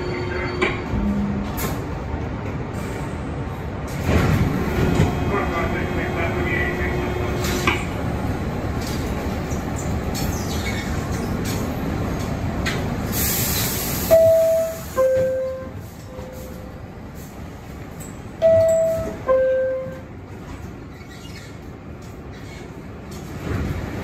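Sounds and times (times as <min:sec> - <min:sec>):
subway train rumble: 0:00.0 - 0:24.0
air brake hiss: 0:13.0 - 0:15.2.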